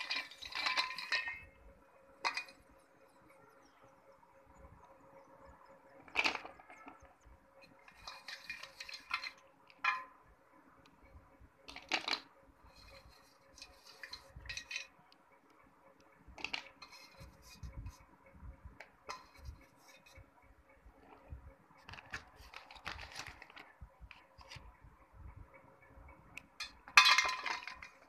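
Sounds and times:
pieces clinking in a steel bowl: 0:00.0 - 0:01.6, 0:07.9 - 0:10.2, 0:26.6 - 0:28.0.

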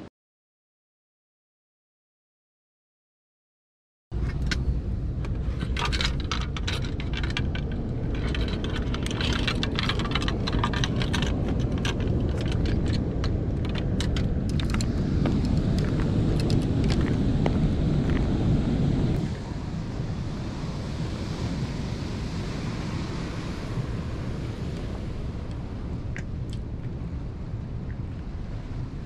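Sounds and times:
wind on microphone: 0:04.2 - 0:29.0
sharp clicks and rattles: 0:05.2 - 0:17.0.

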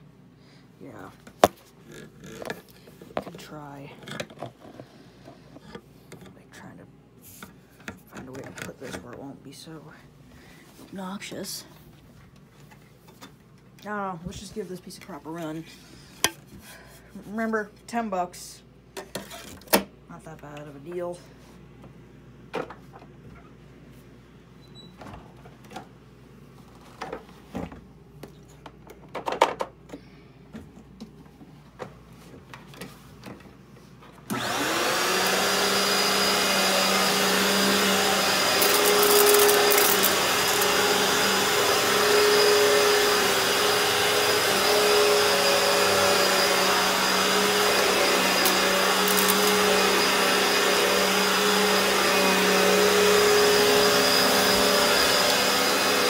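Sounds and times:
vacuum cleaner running on carpet: 0:34.3 - 0:56.0.

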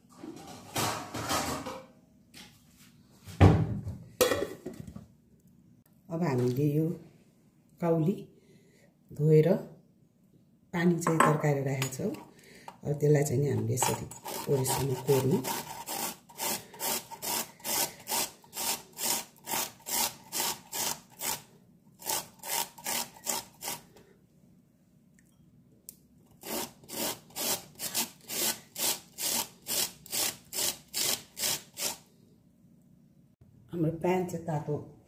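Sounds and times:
rasping of hand grater: 0:13.6 - 0:23.9, 0:26.4 - 0:32.0.

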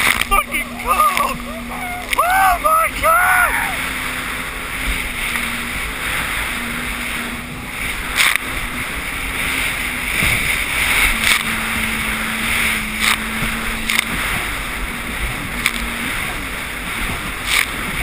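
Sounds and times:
hull slapping water: 0:00.0 - 0:18.0
watercraft engine hum: 0:00.0 - 0:18.0
wind and water noise: 0:00.0 - 0:18.0.

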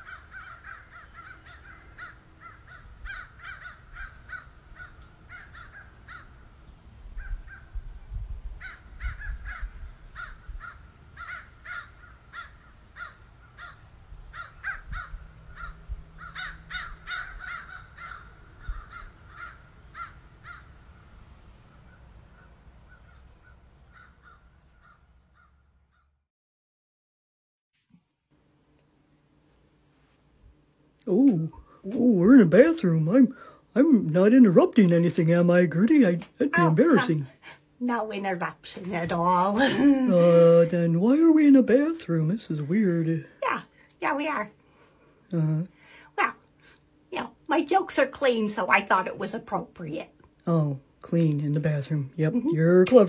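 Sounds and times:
crows cawing: 0:00.0 - 0:06.6, 0:08.6 - 0:21.1, 0:21.7 - 0:26.1.

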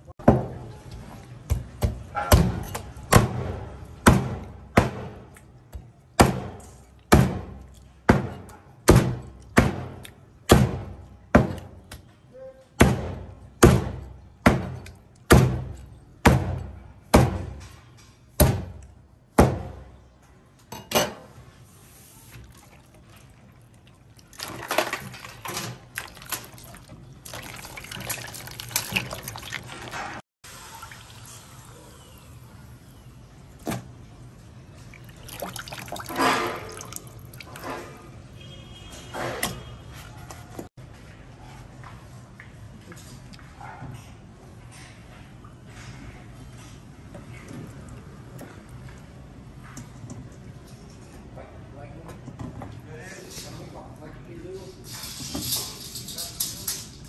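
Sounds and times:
hands splashing in bowl of water: 0:24.2 - 0:30.2, 0:34.9 - 0:38.0.

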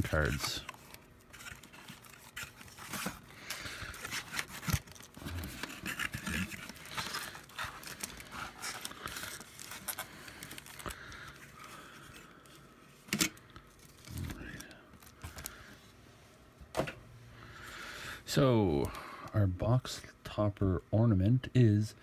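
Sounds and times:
cardboard and wrappers crinkling: 0:00.0 - 0:12.6.

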